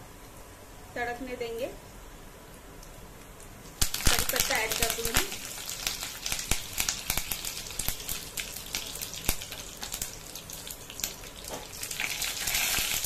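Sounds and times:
hiss of frying: 3.8 - 13.0
seeds popping in hot oil: 3.8 - 13.0.

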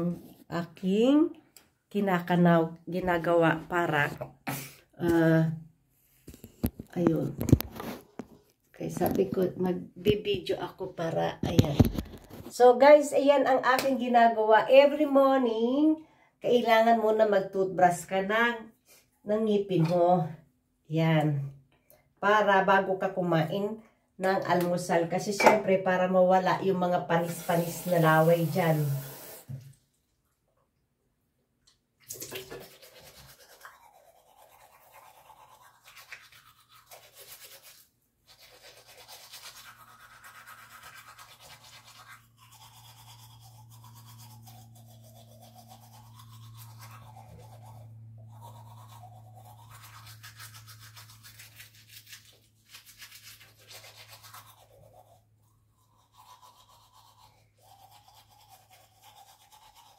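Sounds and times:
toothbrush scrubbing teeth: 27.1 - 29.5, 32.1 - 59.9.

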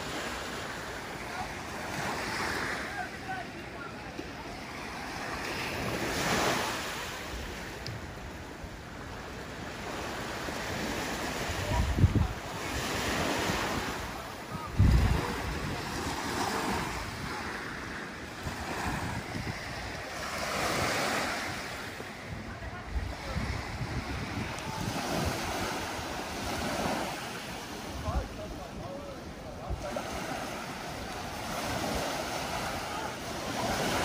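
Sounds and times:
waves washing onto beach: 0.0 - 34.0
wind gusts on microphone: 9.7 - 34.0.

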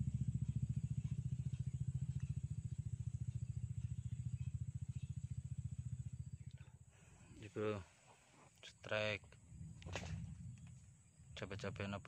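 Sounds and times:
engine running with low throb: 0.0 - 8.6, 9.3 - 12.0.

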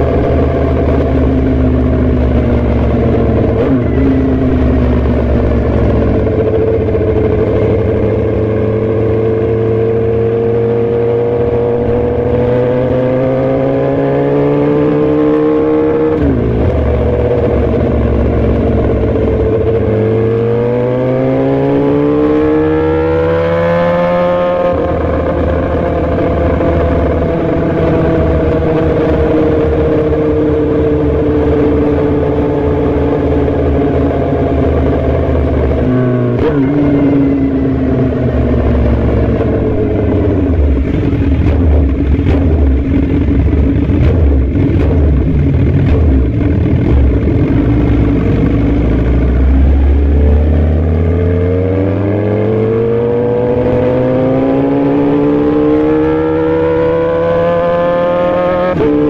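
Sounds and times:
motorcycle engine revving: 0.0 - 59.0
heavy wind rush: 24.7 - 57.6.

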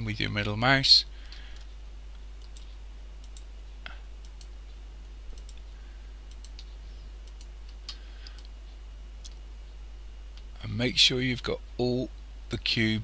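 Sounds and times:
low steady hum: 0.0 - 13.0
computer mouse clicking: 2.4 - 3.5, 4.2 - 4.6, 5.3 - 5.7, 6.3 - 8.6.

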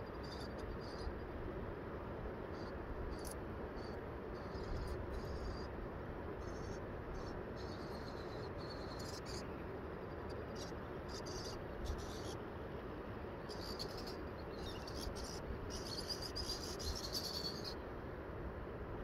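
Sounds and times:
steady background hiss: 0.0 - 19.0
high-pitched chirping: 13.5 - 17.8.

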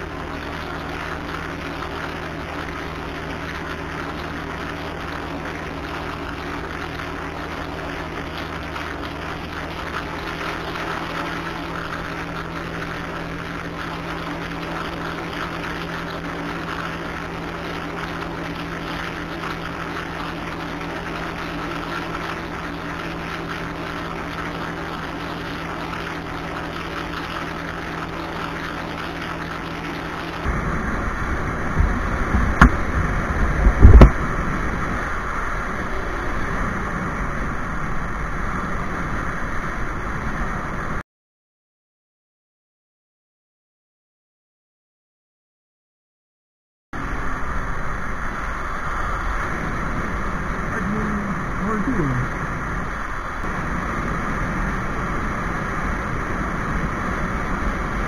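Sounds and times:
motorcycle engine cruising: 0.0 - 40.8
wind buffeting microphone: 30.4 - 41.0
loud thumps: 31.7 - 34.2.

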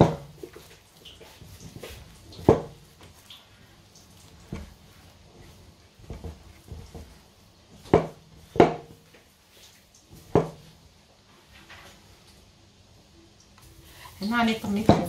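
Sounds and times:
soft dough thuds: 0.0 - 12.2, 13.9 - 15.0.

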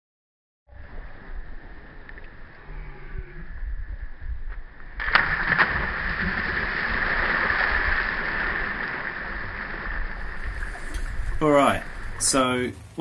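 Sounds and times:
wind rumble on microphone: 0.7 - 6.6, 9.9 - 12.4
splashing and churning water: 4.8 - 13.0.

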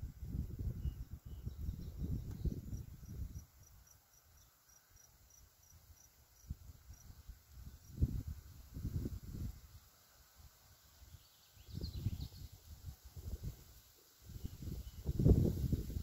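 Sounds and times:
wind buffeting microphone: 0.0 - 3.5, 7.6 - 9.6, 14.3 - 16.0
insect chirping: 0.8 - 12.9.

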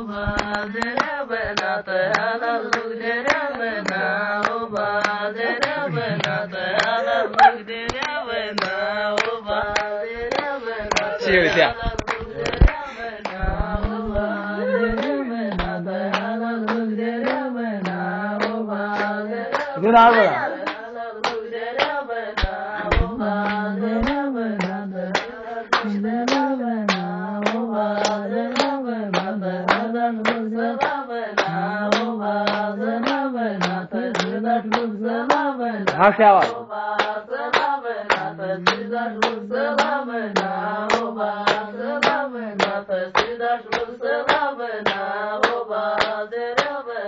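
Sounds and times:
person singing: 0.0 - 36.7
hand clapping: 0.0 - 46.9.

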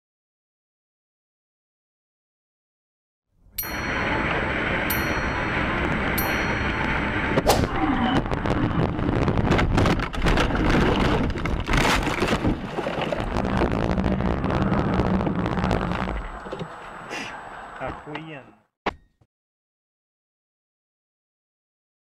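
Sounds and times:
low road rumble: 3.4 - 18.1.

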